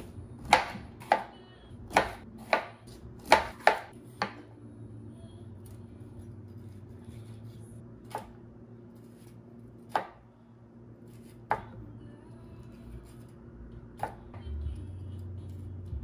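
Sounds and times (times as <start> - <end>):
knife chopping on cutting board: 0.4 - 1.3, 1.9 - 4.4, 9.9 - 10.2.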